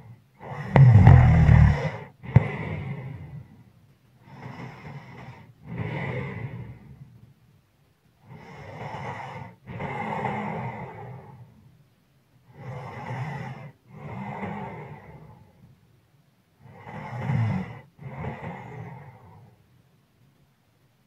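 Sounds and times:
person snoring: 0.4 - 2.5.

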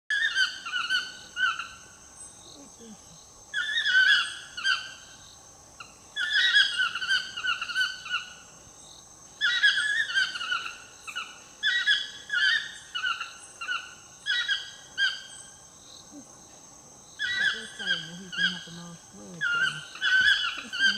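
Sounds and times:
toucans calling: 0.1 - 1.9, 2.6 - 5.2, 5.8 - 8.5, 9.4 - 15.5, 17.2 - 20.9.

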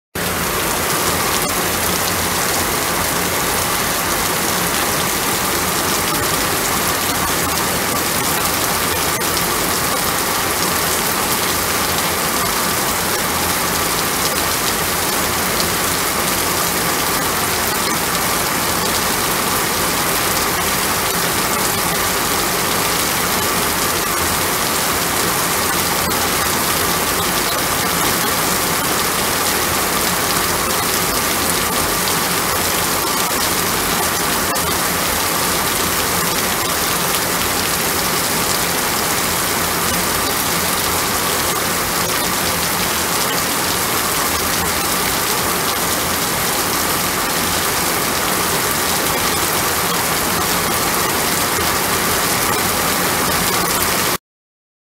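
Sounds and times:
heavy rain: 0.2 - 54.2.

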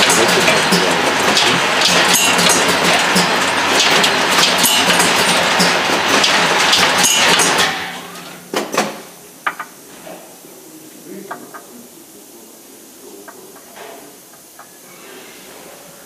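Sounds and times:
knocks: 0.0 - 9.7
bottling machine clattering: 0.0 - 9.8.

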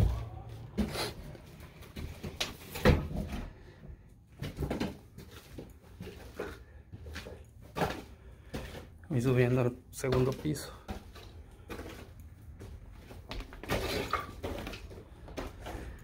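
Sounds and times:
rubble crunching underfoot: 4.3 - 16.0
footsteps on wooden stairs: 9.5 - 16.0.

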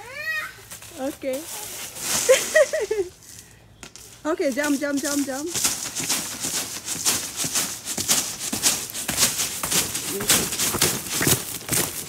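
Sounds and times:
ice crunching and crackling: 0.8 - 12.0.

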